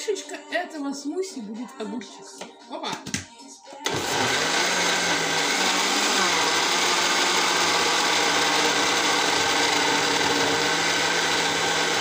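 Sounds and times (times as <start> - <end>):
blender running: 3.8 - 12.0.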